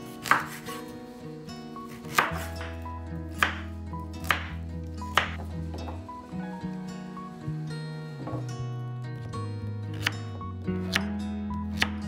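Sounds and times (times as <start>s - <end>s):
knife chopping on wooden board: 0.2s - 0.6s, 2.1s - 2.8s, 3.4s - 3.6s, 4.2s - 5.5s.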